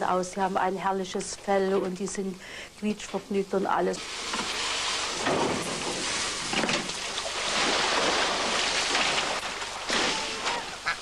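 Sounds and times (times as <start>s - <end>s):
water spraying from a hose: 4.0s - 11.0s.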